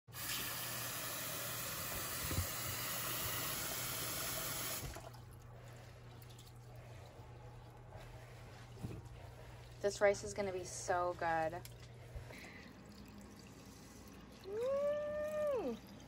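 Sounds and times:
faucet running into bowl: 0.1 - 5.2
hand swishing rice in water: 5.0 - 11.4.

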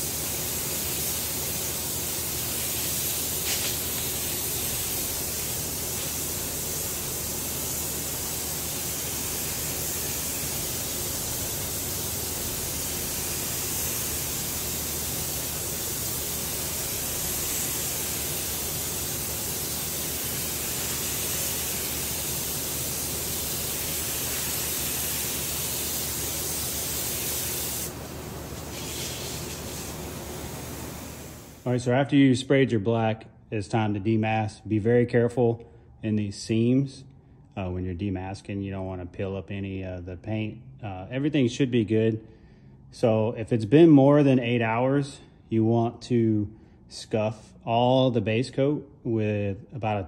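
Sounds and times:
paint spray gun hissing: 0.0 - 31.6.

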